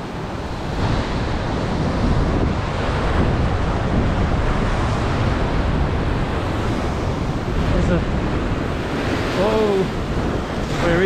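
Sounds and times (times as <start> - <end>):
ocean surf breaking on rocks: 0.0 - 11.0
wind buffeting microphone: 0.0 - 11.0.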